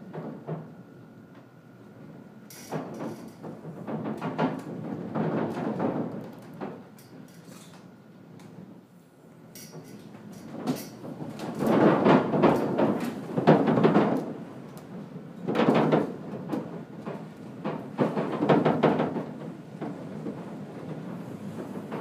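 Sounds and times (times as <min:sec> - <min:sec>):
wooden roof edges knocking: 0:10.6 - 0:14.4, 0:15.5 - 0:22.0.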